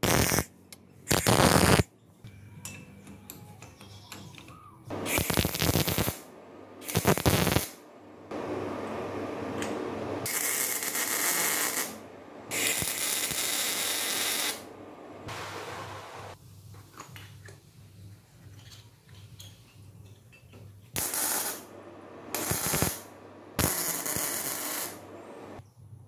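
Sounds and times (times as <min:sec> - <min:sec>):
arc welding crackling and sizzling: 0:00.0 - 0:00.5, 0:01.1 - 0:01.9, 0:04.9 - 0:07.8, 0:10.2 - 0:14.7, 0:21.0 - 0:21.7, 0:22.3 - 0:25.6.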